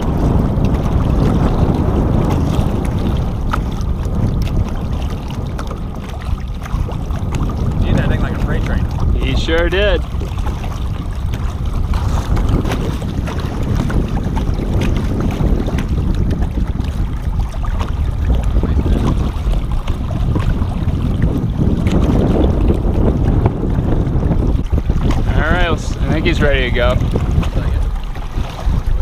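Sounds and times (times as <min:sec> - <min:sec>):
water sloshing and splashing: 0:00.0 - 0:29.0
wind rumble on microphone: 0:00.0 - 0:29.0.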